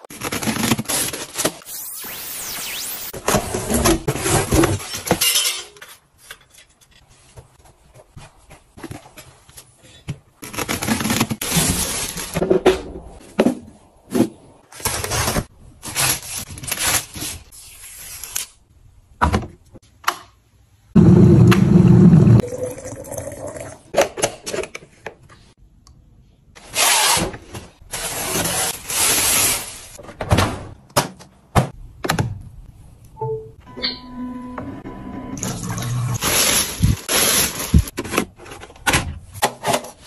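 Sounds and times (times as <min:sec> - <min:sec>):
cardboard and plastic rustling: 0:07.2 - 0:12.6, 0:36.2 - 0:40.0.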